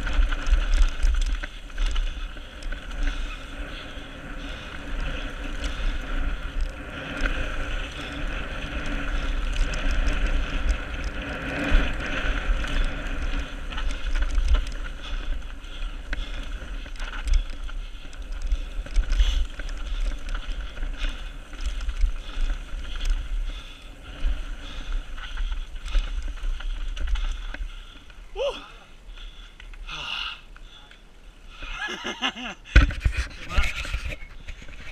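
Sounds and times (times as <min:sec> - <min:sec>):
wind buffeting microphone: 0:00.0 - 0:29.3
bike rattling over bumps: 0:00.0 - 0:34.9
bike tyres rumbling on dirt: 0:00.0 - 0:34.9.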